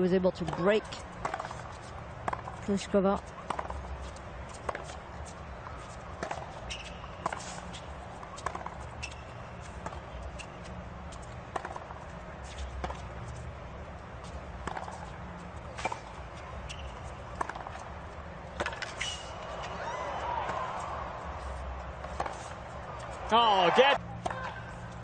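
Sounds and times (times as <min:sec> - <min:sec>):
tennis ball bounces: 0:00.3 - 0:13.4, 0:14.2 - 0:25.0
shoe squeaks: 0:03.3 - 0:11.2, 0:14.9 - 0:17.8, 0:18.6 - 0:20.7
stadium crowd murmur: 0:09.6 - 0:25.0.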